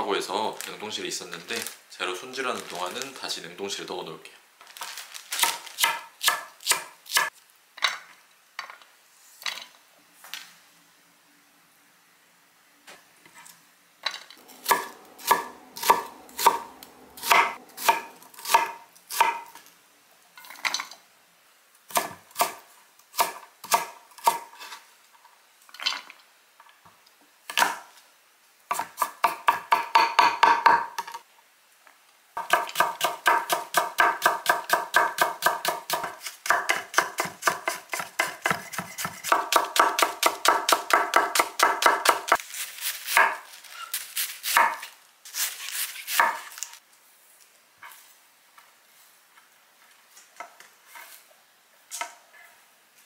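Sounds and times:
knife chopping on wooden board: 14.6s - 19.5s, 32.4s - 42.4s.

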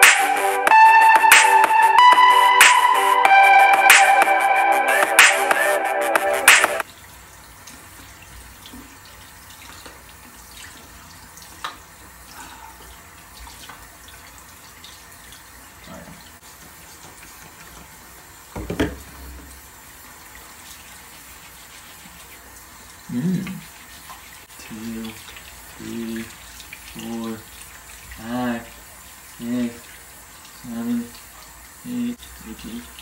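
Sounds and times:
faucet running thin stream: 6.8s - 33.0s.

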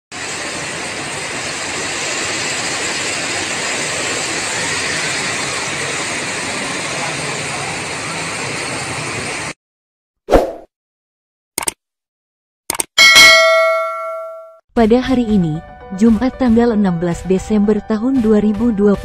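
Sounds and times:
heavy rain: 0.2s - 9.5s.

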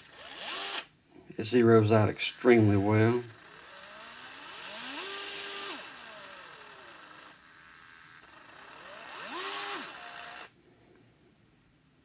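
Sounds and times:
electric screwdriver motor whining: 0.0s - 0.9s, 2.2s - 10.5s.

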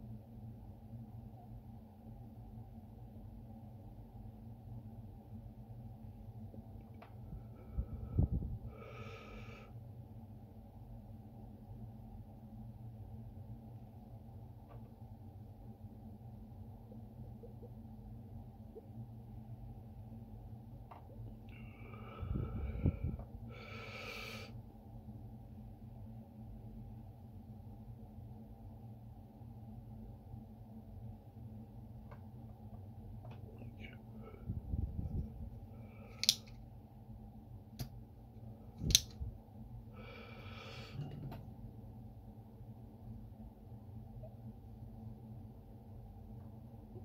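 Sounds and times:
low hum: 0.0s - 47.0s
desoldering pump snapping: 36.2s - 36.5s, 38.8s - 39.2s.

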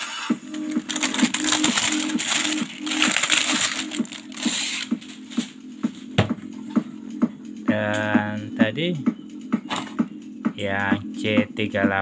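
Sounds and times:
low pulsing hum: 0.3s - 12.0s
crinkling handling noise: 0.4s - 5.6s.

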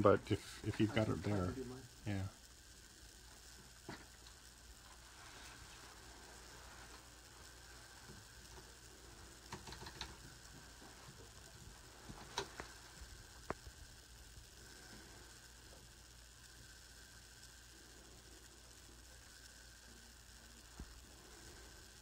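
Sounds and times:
steady low hiss: 0.0s - 22.0s
keyboard typing clicks: 9.5s - 10.2s.

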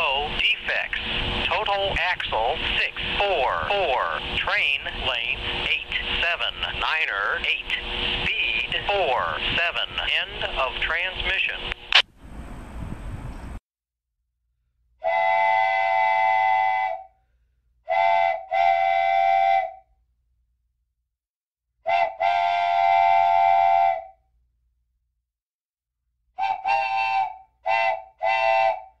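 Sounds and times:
train horn blasts: 15.0s - 17.1s, 17.9s - 19.8s, 21.9s - 24.2s, 26.4s - 29.0s.

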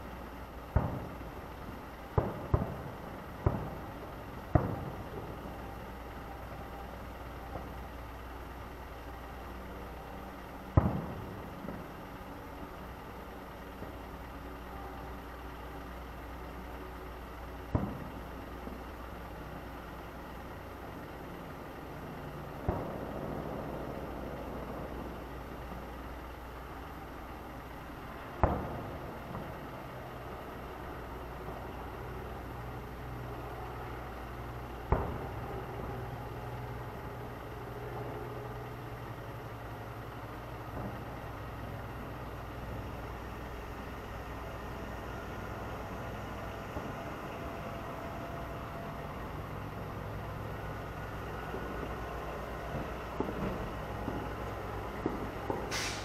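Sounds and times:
steady low hum: 0.0s - 56.0s
distant fireworks booming: 0.6s - 8.6s, 9.6s - 14.1s, 17.5s - 18.6s, 21.7s - 26.9s, 27.6s - 56.0s.

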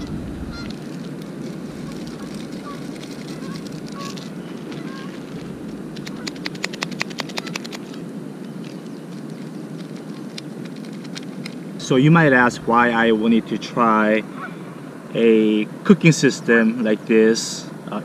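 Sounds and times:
foil packet tearing: 0.0s - 11.8s.

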